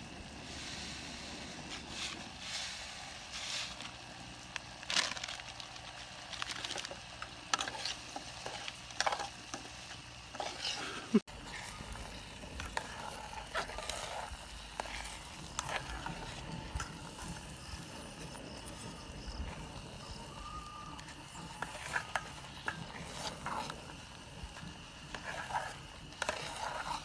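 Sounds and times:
metal spoon scraping pot: 0:07.5 - 0:09.7, 0:10.3 - 0:17.7, 0:24.6 - 0:27.0.

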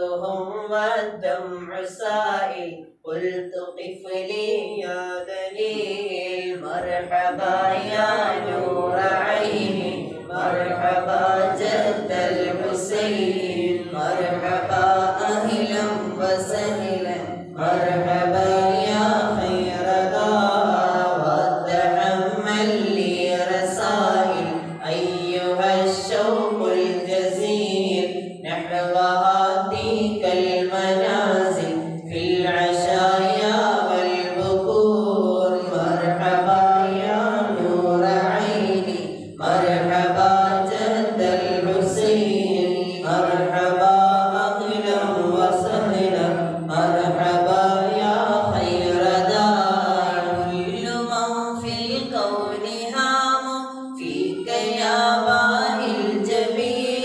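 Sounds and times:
men chanting into microphones: 0:00.0 - 0:57.0.

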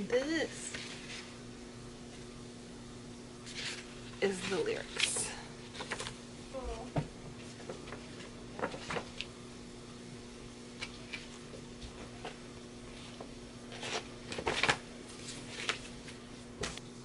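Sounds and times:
faint steady hum: 0:00.0 - 0:17.0
paper poster rustling and crinkling: 0:00.6 - 0:01.4, 0:03.4 - 0:09.4, 0:10.8 - 0:16.8.

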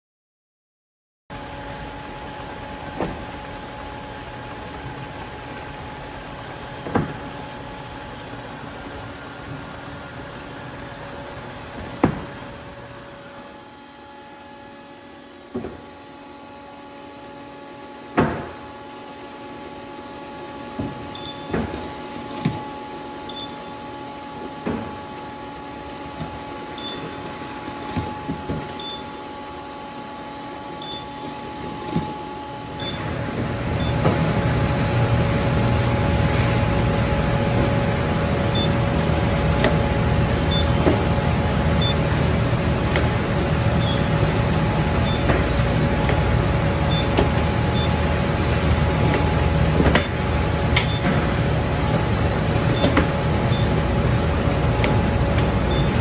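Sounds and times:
machine hum: 0:01.3 - 0:56.0
conveyor belt rumble: 0:31.8 - 0:56.0.

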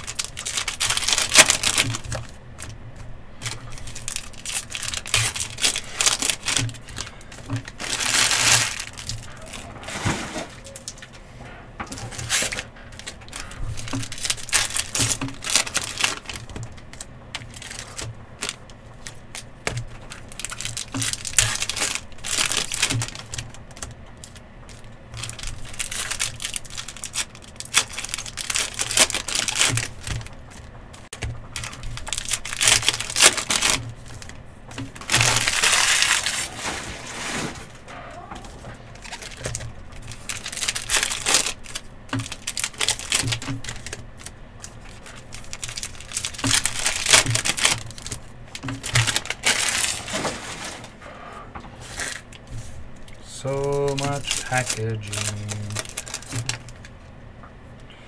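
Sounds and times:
card wrappers crinkling and tearing: 0:00.0 - 0:11.2, 0:11.9 - 0:51.0, 0:51.8 - 0:57.0
cards being shuffled: 0:51.8 - 0:56.8.

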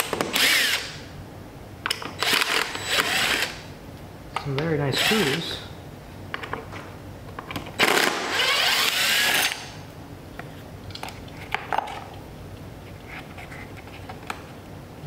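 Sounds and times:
cordless drill whining: 0:00.4 - 0:01.0, 0:02.2 - 0:03.6, 0:07.8 - 0:09.7.

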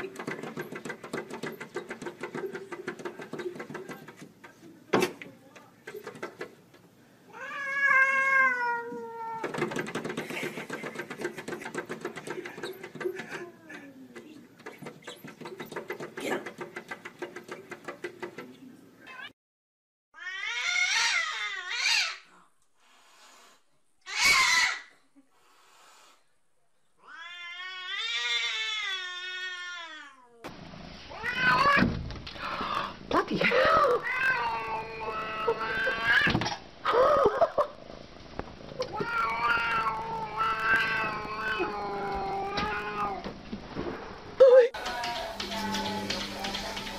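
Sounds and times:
cat yowling: 0:07.3 - 0:09.5, 0:20.2 - 0:22.3, 0:31.1 - 0:31.8, 0:33.8 - 0:36.4, 0:38.9 - 0:43.2.

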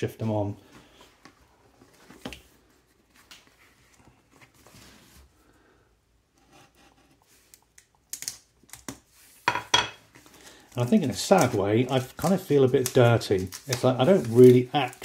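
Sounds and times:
plastic film rustling: 0:10.2 - 0:15.0
plastic film crackles: 0:10.4 - 0:15.0.

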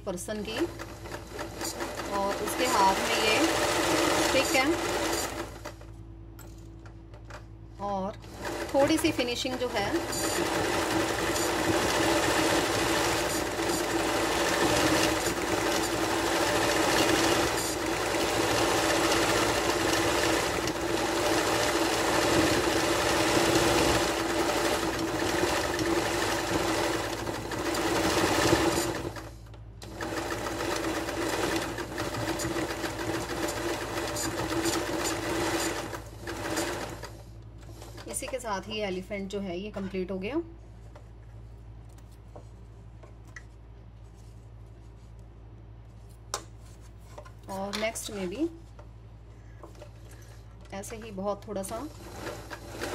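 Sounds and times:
electric sewing machine stitching: 0:00.5 - 0:05.9, 0:07.8 - 0:38.2, 0:51.6 - 0:52.9.

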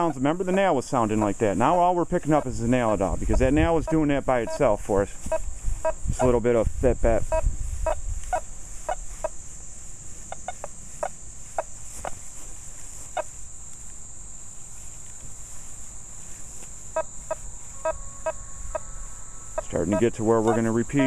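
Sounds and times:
metal detector beeps: 0:02.4 - 0:06.4, 0:07.2 - 0:09.0, 0:16.9 - 0:18.8, 0:19.6 - 0:21.0.

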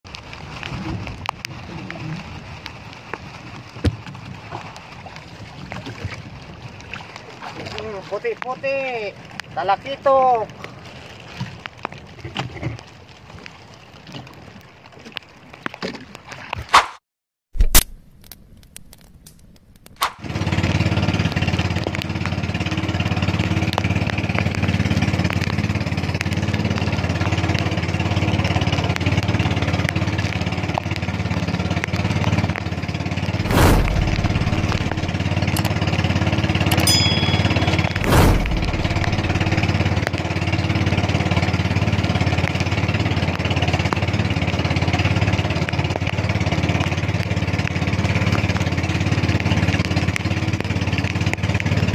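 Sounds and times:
small boat engine running: 0:20.2 - 0:51.9.

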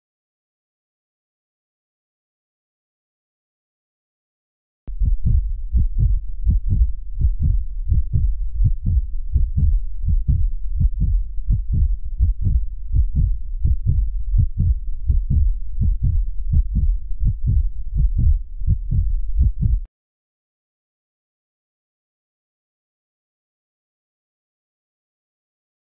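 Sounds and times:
heartbeat thumps: 0:04.9 - 0:19.9.

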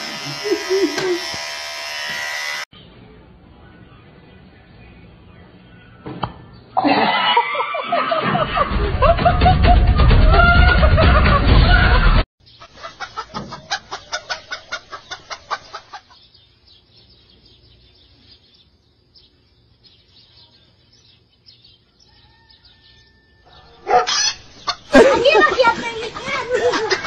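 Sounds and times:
hen clucking: 0:12.4 - 0:16.4, 0:23.5 - 0:27.0.

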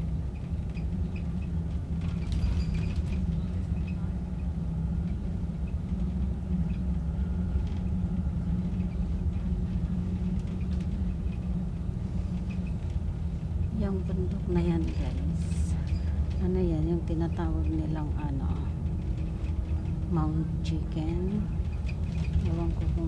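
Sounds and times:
bus engine and road rumble: 0:00.0 - 0:23.0.

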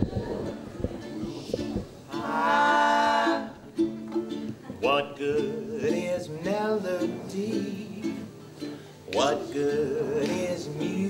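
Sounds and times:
ukulele strumming chords: 0:00.0 - 0:11.0
man singing: 0:02.1 - 0:03.6, 0:04.8 - 0:08.4, 0:09.1 - 0:11.0.

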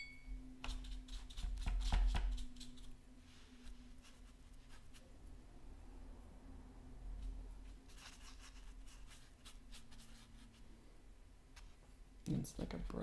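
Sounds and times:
low steady hum: 0:00.0 - 0:13.0
paintbrush tapping on paper: 0:00.6 - 0:02.4.

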